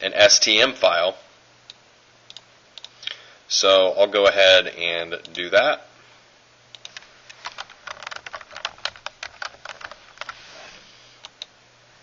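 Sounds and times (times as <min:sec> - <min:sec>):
keyboard typing: 0:06.8 - 0:10.4.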